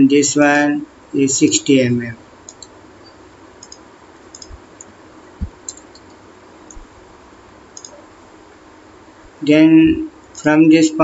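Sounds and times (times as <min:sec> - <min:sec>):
low hiss: 0:00.0 - 0:11.0
computer mouse clicks: 0:02.4 - 0:02.7, 0:03.6 - 0:06.9, 0:07.8 - 0:08.0
soft low thump: 0:05.4 - 0:05.6.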